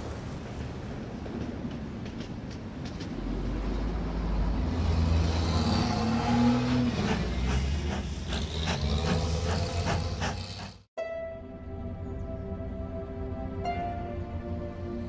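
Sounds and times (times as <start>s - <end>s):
train rumbling on rails: 0.0s - 10.9s
train wheels clicking: 6.6s - 10.9s.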